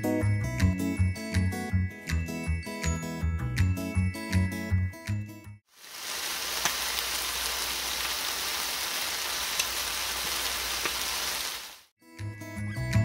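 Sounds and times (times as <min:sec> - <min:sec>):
food sizzling in oil: 0:05.7 - 0:11.9
oil popping: 0:05.8 - 0:11.6.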